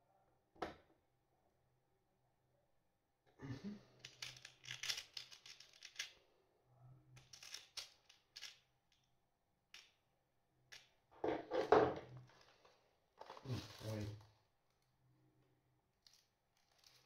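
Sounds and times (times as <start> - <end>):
metal screws rattling in plastic box: 4.0 - 6.2, 7.2 - 8.6, 16.0 - 17.0.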